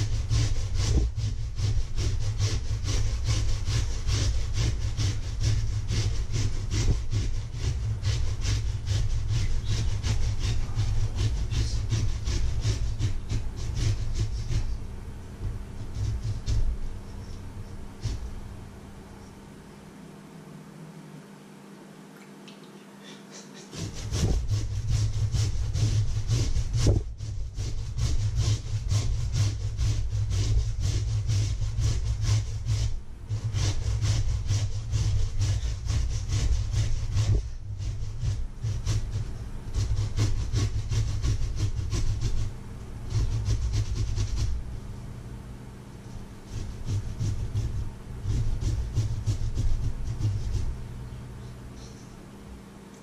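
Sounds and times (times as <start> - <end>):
potatoes rasping on metal grater: 0.0 - 14.8, 23.7 - 44.7, 46.5 - 51.0.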